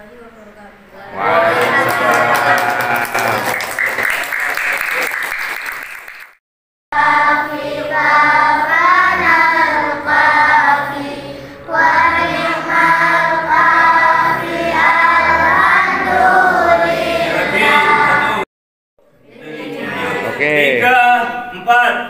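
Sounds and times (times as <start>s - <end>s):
backing music: 7.0s - 18.4s
children singing: 7.0s - 18.4s.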